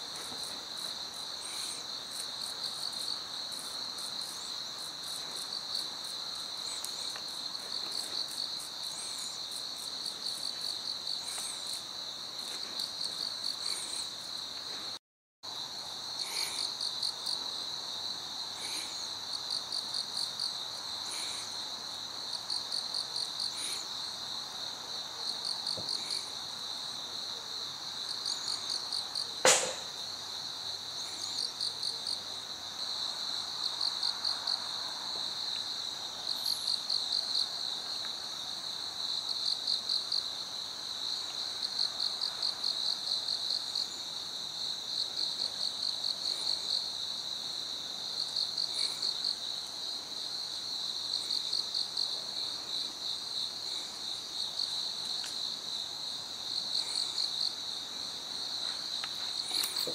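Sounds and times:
insects chirping: 0.0s - 59.9s
sharp click: 29.5s - 29.9s.

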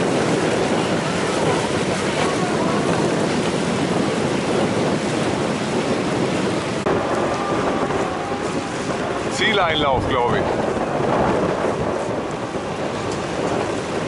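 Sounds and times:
choppy sea water breaking: 0.0s - 14.0s
wind buffeting microphone: 0.0s - 14.0s.

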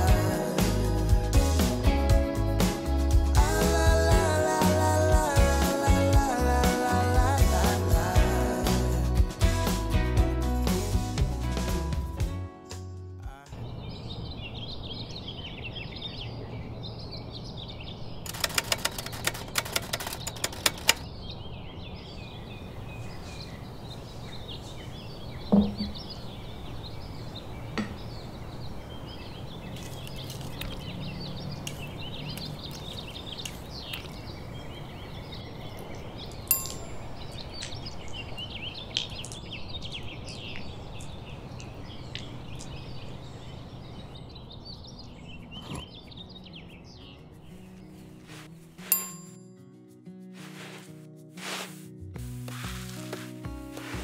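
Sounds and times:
birds chirping: 13.3s - 49.4s
rapid clicks: 18.3s - 21.0s
thump: 25.5s - 26.0s
small ringing clink: 36.5s - 37.1s, 48.8s - 49.6s.

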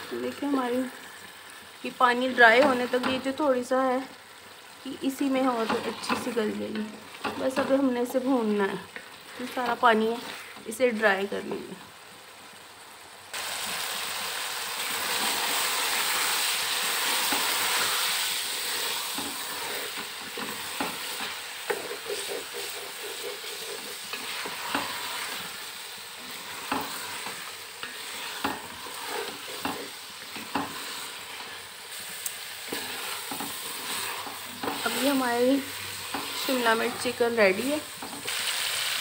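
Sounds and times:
food sizzling in a metal pot: 0.0s - 39.0s
wooden spatula scraping and knocking: 18.6s - 25.5s, 26.2s - 31.6s, 32.6s - 38.3s.

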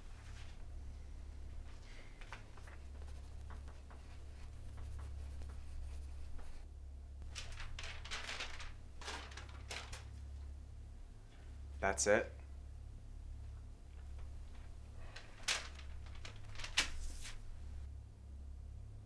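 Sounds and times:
pencil scratching on paper: 2.7s - 6.7s.

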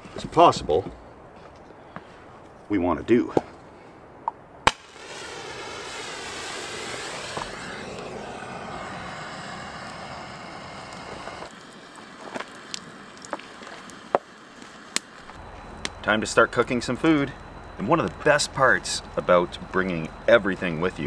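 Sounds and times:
firewood snapping: 4.6s - 5.0s, 11.4s - 16.0s
torch flame jet hissing: 4.7s - 15.4s.

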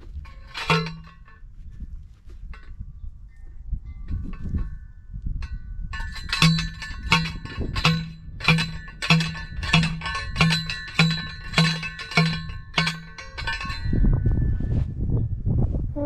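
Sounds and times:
post driver clanging on metal: 0.0s - 1.4s, 5.4s - 14.2s
light metal clinks: 0.0s - 14.6s.

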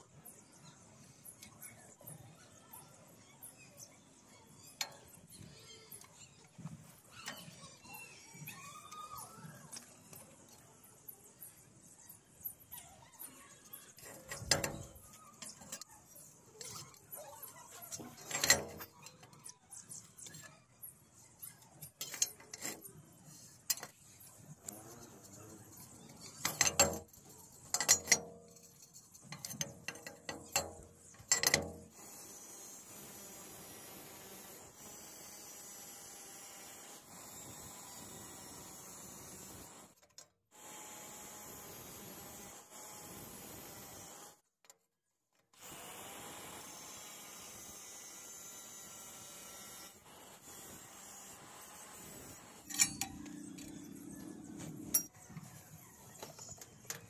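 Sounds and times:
metal tube clinking: 25.6s - 31.9s, 52.6s - 55.2s
angle grinder cutting metal: 45.9s - 55.1s.

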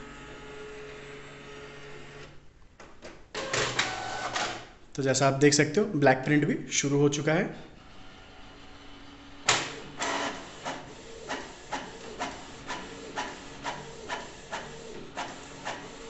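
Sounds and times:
printer motor whirr: 0.0s - 2.4s, 3.4s - 4.7s, 7.8s - 16.0s
printer clack: 9.5s - 16.0s.

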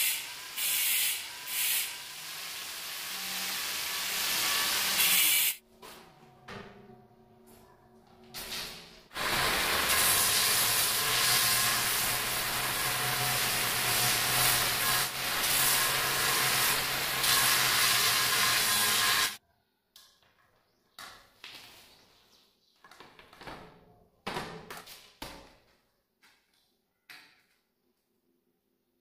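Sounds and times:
angle grinder cutting stone: 0.0s - 5.6s, 9.2s - 19.4s.

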